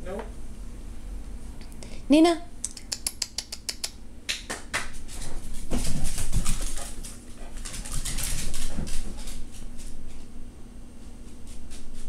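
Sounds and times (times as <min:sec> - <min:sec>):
dog claws clicking on floor: 0:02.7 - 0:10.3
dogs playing noises: 0:05.0 - 0:10.3.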